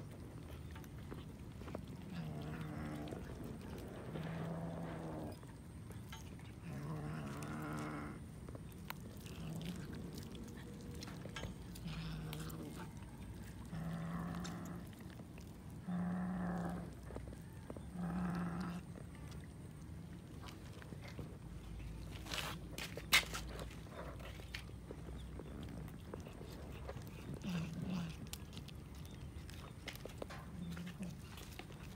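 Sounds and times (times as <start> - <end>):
faint chewing and tearing meat: 0.0 - 31.9
cat growling: 1.9 - 5.4, 6.6 - 8.2, 9.1 - 19.5, 25.3 - 28.6.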